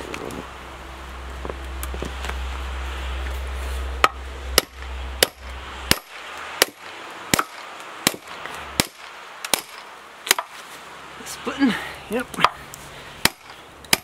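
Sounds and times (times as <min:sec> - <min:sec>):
sledgehammer striking steel wedge: 0:04.0 - 0:10.6, 0:13.2 - 0:14.0.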